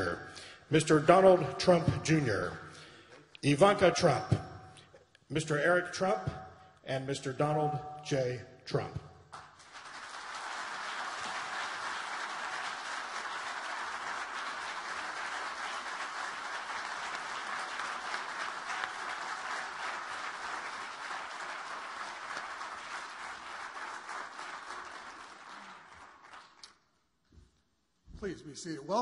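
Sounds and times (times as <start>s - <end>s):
audience applauding: 9.3s - 26.8s.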